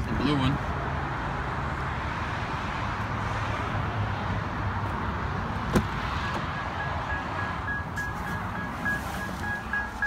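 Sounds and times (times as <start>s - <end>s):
car engine idling: 5.6s - 10.0s
car door chime beeping: 6.2s - 10.0s.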